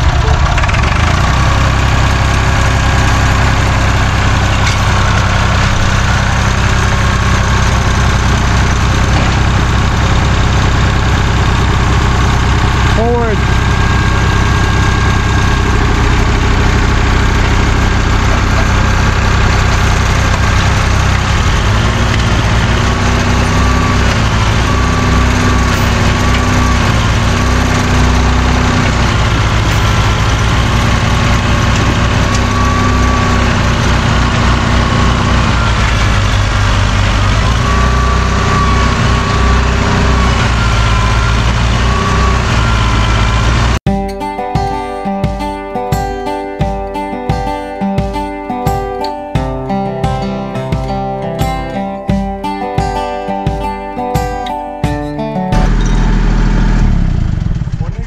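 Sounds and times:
tractor engine revving: 0.0 - 43.9, 55.5 - 58.0
tractor engine steady drone: 0.0 - 58.0.

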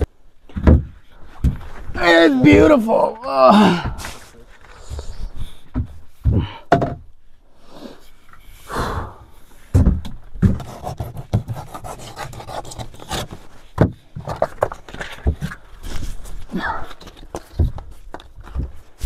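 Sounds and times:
knocks and thuds on wood: 0.5 - 1.8, 2.4 - 2.9, 5.7 - 7.1, 9.7 - 11.8, 13.8 - 15.6, 17.3 - 18.9
heavy breath: 3.5 - 6.7, 7.6 - 9.7, 16.0 - 17.1.

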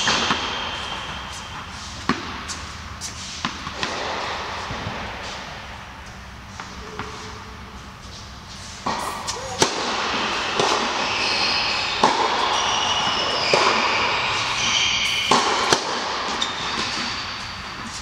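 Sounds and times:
shoes squeaking: 8.0 - 18.0
tennis ball struck by rackets: 8.8 - 11.0, 15.1 - 16.1.

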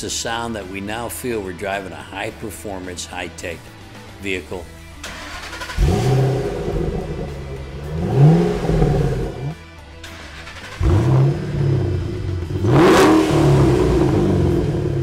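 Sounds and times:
car engine revving: 5.0 - 15.0.

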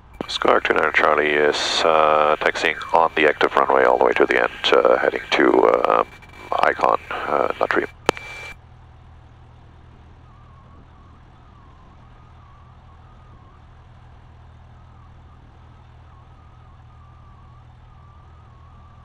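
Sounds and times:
aircraft engine humming: 0.0 - 19.0
faint wavering whine: 0.0 - 19.0
radio static burst: 0.1 - 8.6.

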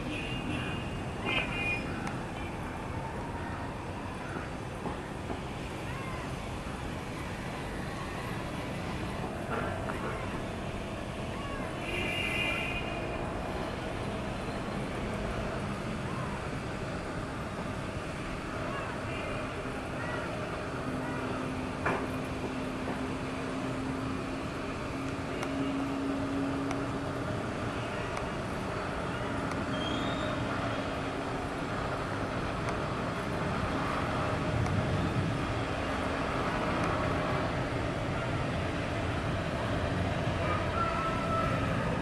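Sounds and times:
city traffic noise: 0.0 - 42.0
distant jet engines approaching: 12.8 - 42.0.

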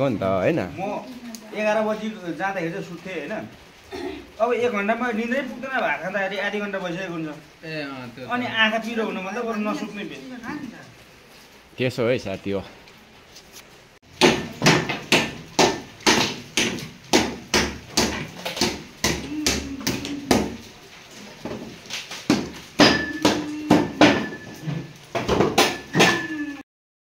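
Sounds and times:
hammer blows with metallic ring: 22.8 - 24.6.

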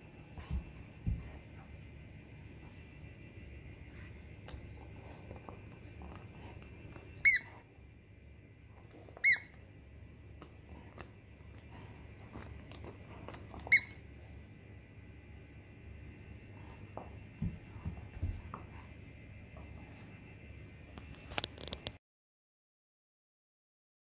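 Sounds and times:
toy squeaker squeaking: 7.2 - 7.5.

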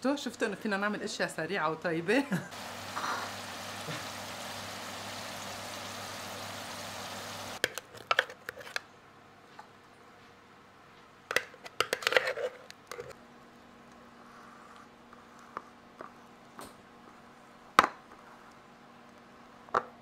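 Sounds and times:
steady hiss with hum: 2.4 - 7.6.

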